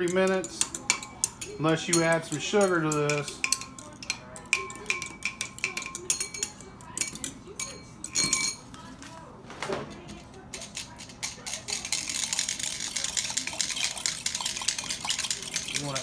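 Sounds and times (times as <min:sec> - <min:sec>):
fork clinking in a glass: 0:00.0 - 0:08.6.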